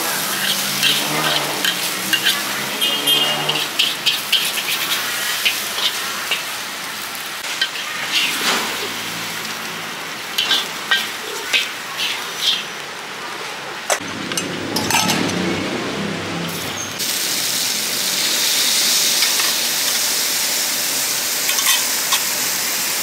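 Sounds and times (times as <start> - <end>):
noodles sizzling in a wok: 0.0 - 14.0, 17.0 - 23.0
utensil clanking and scraping: 0.3 - 6.5, 7.4 - 9.0, 10.3 - 12.7, 13.8 - 15.5, 21.5 - 22.3.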